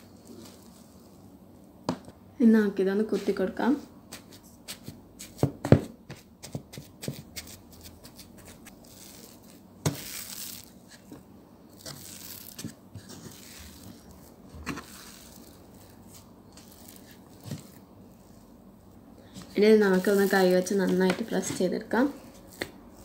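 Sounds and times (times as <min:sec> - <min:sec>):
dough squishing and tearing: 0:06.4 - 0:23.0.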